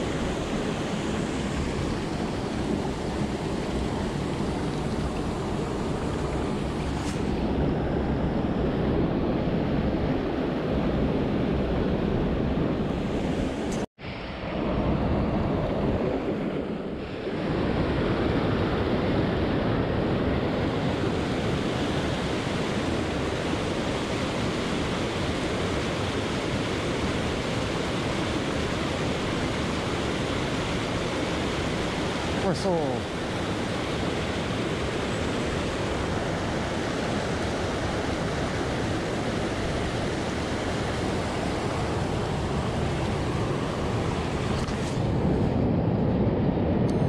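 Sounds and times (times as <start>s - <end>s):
rushing river water: 0.0s - 9.0s, 17.0s - 45.5s.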